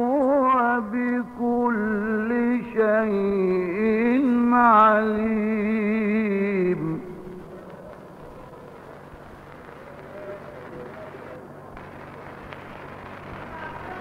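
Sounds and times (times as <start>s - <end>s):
man chanting: 0.0s - 7.5s
faint hiss: 0.0s - 14.0s.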